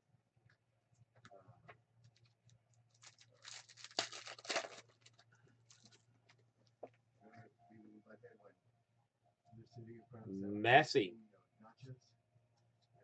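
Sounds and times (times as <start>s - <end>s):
plastic wrapper crinkling and tearing: 2.0s - 6.1s.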